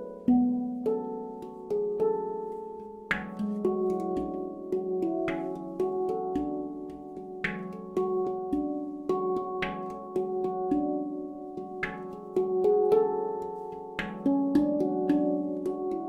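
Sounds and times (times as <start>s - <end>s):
handpan notes ringing: 0.0s - 16.0s.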